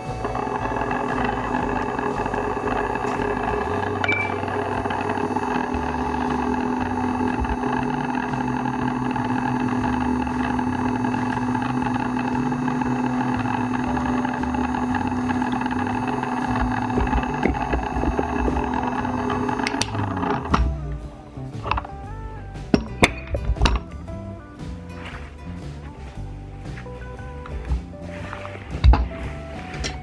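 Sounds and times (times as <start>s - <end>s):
small electric fan motor running: 0.0s - 22.3s.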